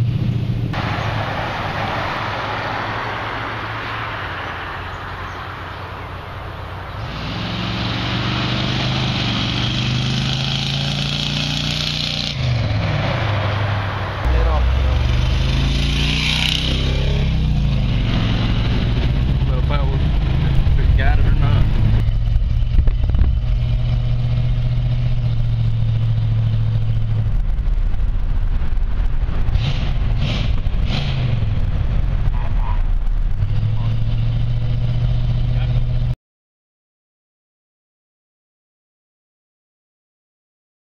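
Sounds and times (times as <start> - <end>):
truck engine driving past: 0.0 - 36.2.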